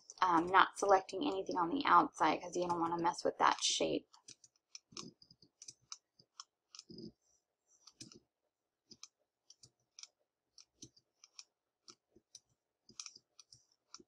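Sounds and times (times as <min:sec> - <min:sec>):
mouse and keyboard clicks: 0:12.9 - 0:14.0.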